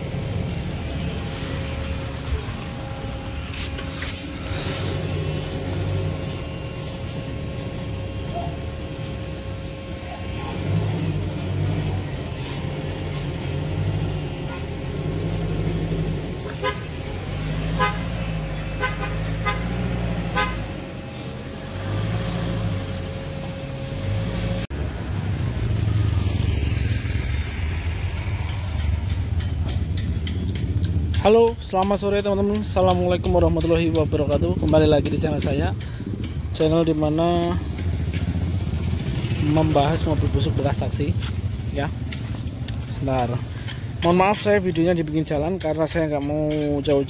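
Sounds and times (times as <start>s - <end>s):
vehicle engine running: 0.0s - 47.0s
short horn toots: 16.4s - 21.3s.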